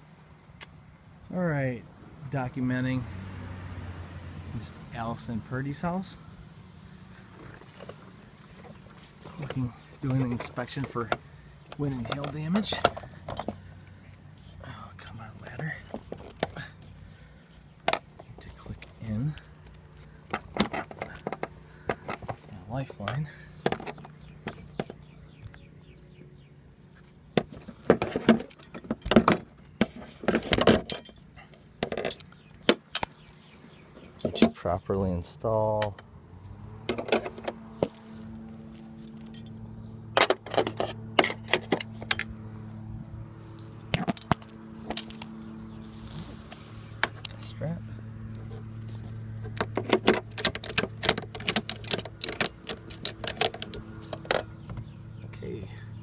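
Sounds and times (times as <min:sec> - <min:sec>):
metal harness hardware jangling: 0:28.0 - 0:29.5, 0:30.3 - 0:33.2, 0:34.1 - 0:34.6, 0:37.9 - 0:42.4, 0:44.0 - 0:45.4, 0:49.7 - 0:54.6.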